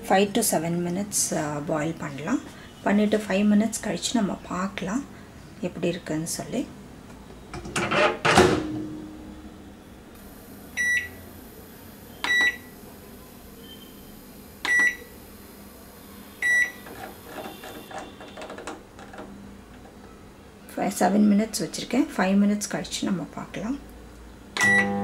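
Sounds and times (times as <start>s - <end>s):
keypad beeps: 10.8s - 11.1s, 12.2s - 12.7s, 14.6s - 15.0s, 16.4s - 16.8s.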